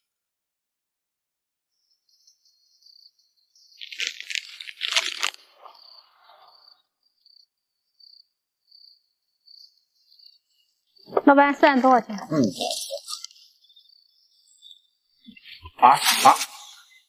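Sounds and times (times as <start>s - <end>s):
cardboard box crinkling: 3.8s - 5.4s.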